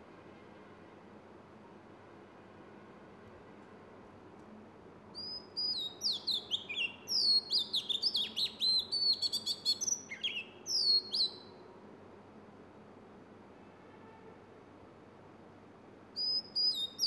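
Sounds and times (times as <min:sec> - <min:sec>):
bird singing whistled notes: 0:05.2 - 0:11.6, 0:16.2 - 0:17.0.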